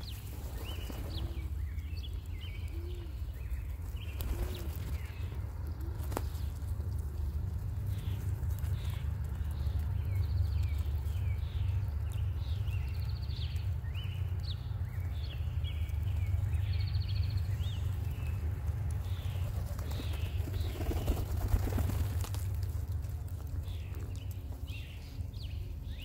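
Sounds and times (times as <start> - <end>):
pigeon wings flapping: 0.0 - 1.6, 3.8 - 10.0, 18.4 - 24.7
small birds chirping: 0.0 - 26.0
steady low rumble: 0.0 - 26.0.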